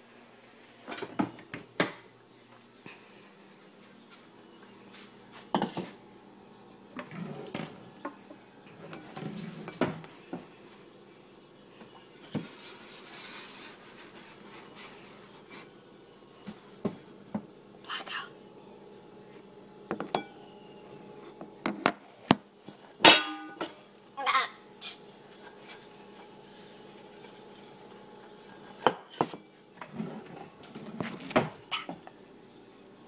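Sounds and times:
dishes clinking and knocking: 5.5 - 6.0, 19.9 - 20.4, 23.0 - 23.8.

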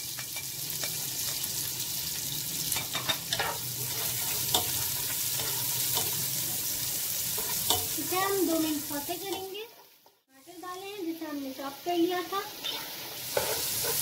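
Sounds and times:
onions sizzling in hot oil: 0.0 - 14.0
spatula scraping and tapping pot: 2.8 - 6.2, 12.6 - 14.0.

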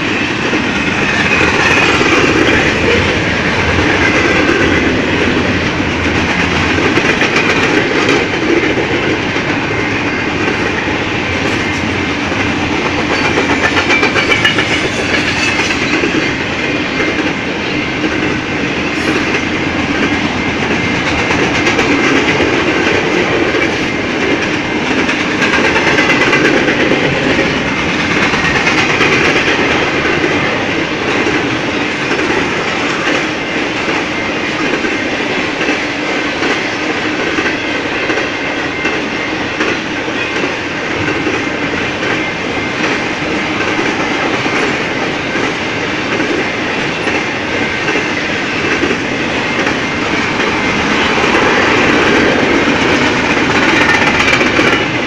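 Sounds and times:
train wheels rolling on rails: 0.0 - 55.0
wheels clicking over rail joints: 0.4 - 17.4, 42.8 - 55.0.

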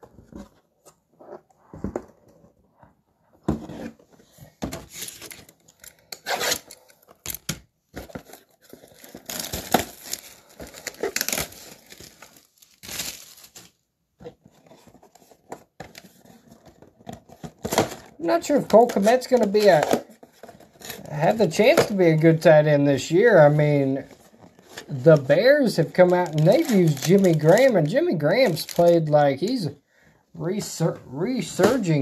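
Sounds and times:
packs rustling: 7.9 - 22.4, 23.1 - 29.7
wrapping tearing and crinkling: 8.1 - 13.8, 24.1 - 29.6.

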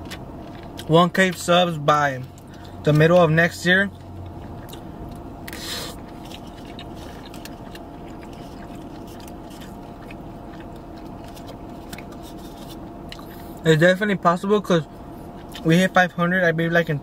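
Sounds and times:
person chewing food: 0.0 - 0.9, 2.2 - 3.1, 3.9 - 13.6
steady low hum: 0.0 - 17.0.

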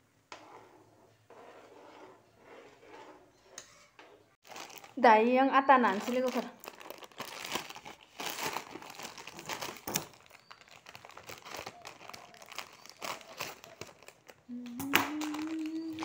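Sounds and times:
plastic packet crinkling: 4.4 - 16.0.

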